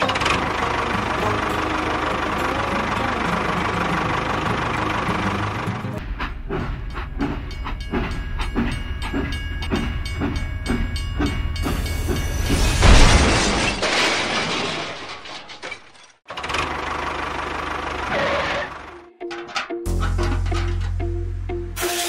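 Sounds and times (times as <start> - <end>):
loud rushing hiss: 21.8 - 22.0.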